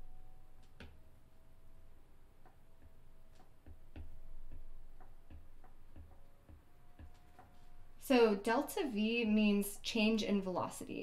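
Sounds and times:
faint steady tone: 0.0s - 11.0s
stylus tapping on tablet screen: 2.4s - 7.2s.

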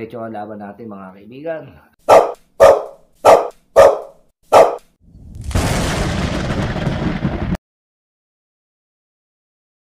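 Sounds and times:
dog barks: 2.1s - 4.9s
loud boom-like blast: 5.0s - 7.6s.

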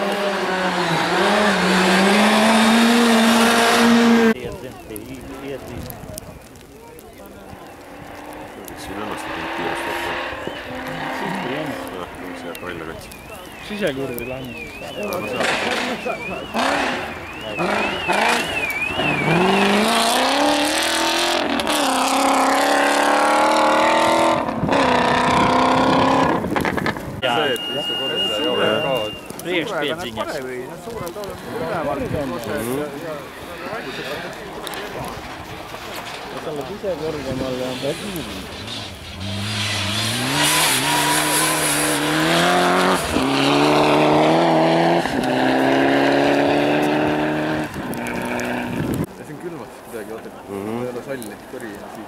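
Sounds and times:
rally car engine revving: 0.0s - 4.4s, 7.8s - 12.7s, 15.1s - 27.1s, 37.0s - 49.1s.

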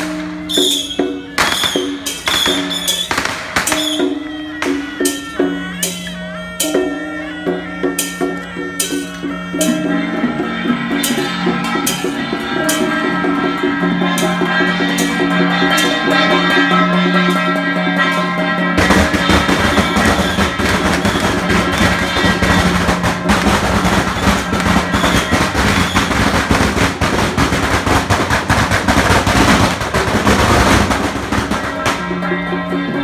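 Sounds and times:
firecrackers crackling: 0.0s - 5.4s, 18.8s - 32.2s
procession music: 0.0s - 33.0s.

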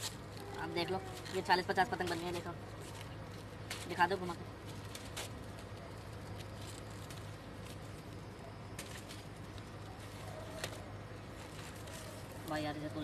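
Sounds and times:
soft paper crackles: 0.0s - 13.0s
steady low hum: 0.0s - 13.0s
paper rustling: 8.8s - 12.5s.

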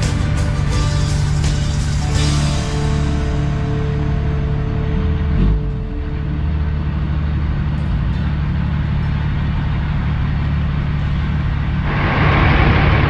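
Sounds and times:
diesel truck engine droning: 0.0s - 13.0s.

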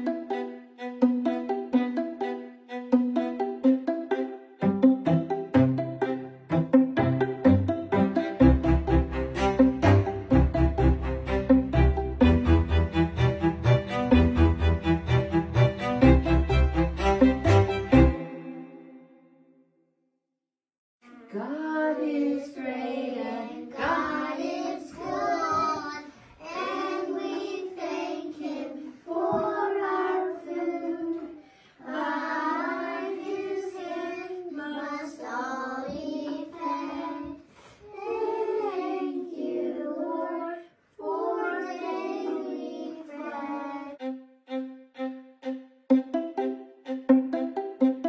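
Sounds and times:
young children singing: 21.3s - 44.0s.

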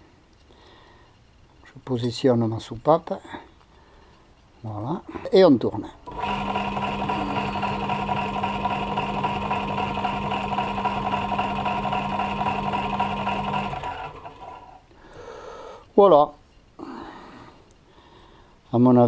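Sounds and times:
drill press motor humming: 6.0s - 14.8s.

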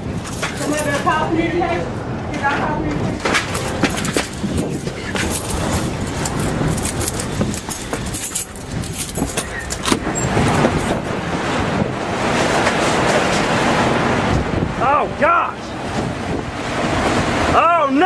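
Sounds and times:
strong wind rushing: 0.0s - 17.6s
rapid rattling and clicking: 3.2s - 11.2s.

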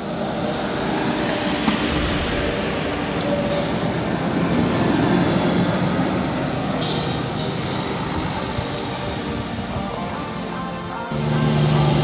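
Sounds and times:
coach bus driving past: 0.0s - 12.0s.

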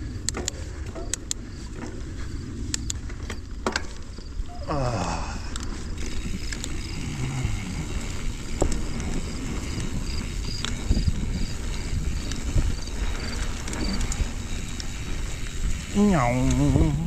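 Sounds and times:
bike tyres rumbling: 0.0s - 17.0s
wind on microphone: 4.4s - 17.0s
rattle: 5.4s - 17.0s
light ticking: 16.0s - 17.0s.

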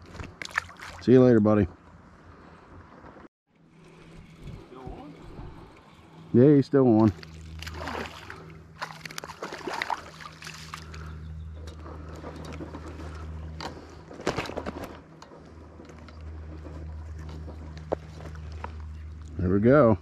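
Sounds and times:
low hum: 1.7s - 20.0s
fish splashing in water: 7.2s - 11.1s.

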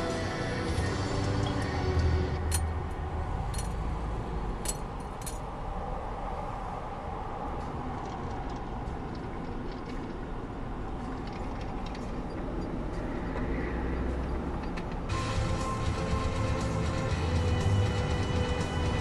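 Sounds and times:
music: 0.0s - 2.8s, 15.1s - 19.0s
car road and engine rumble: 0.0s - 19.0s
deep engine rumble: 0.0s - 19.0s.

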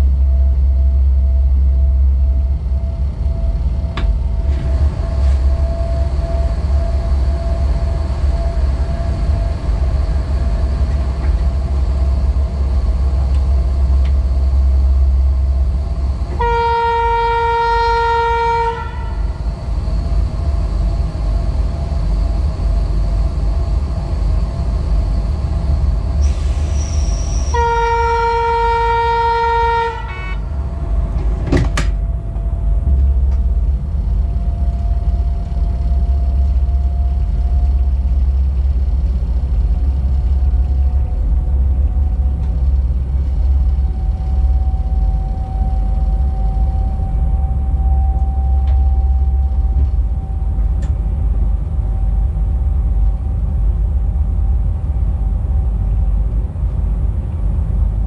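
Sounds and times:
train rumbling: 0.0s - 58.0s
locomotive horn: 16.3s - 19.5s, 27.5s - 30.6s.

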